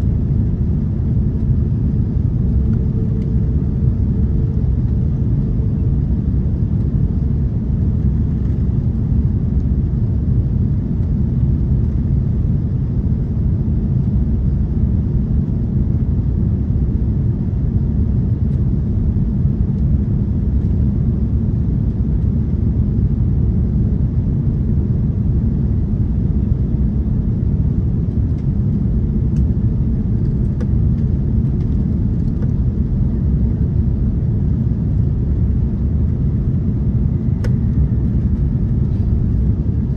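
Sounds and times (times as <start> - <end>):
airliner cabin rumble: 0.0 - 39.9.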